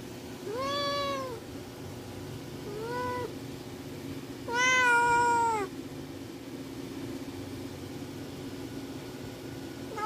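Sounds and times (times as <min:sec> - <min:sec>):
steady low hum: 0:00.0 - 0:10.0
kitten meowing: 0:00.5 - 0:01.4, 0:02.7 - 0:03.3, 0:04.5 - 0:05.7.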